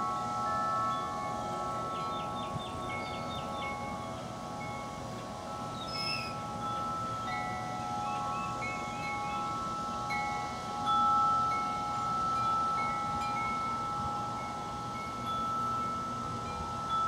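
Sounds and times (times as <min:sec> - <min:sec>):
wind chimes ringing: 0:00.0 - 0:17.0.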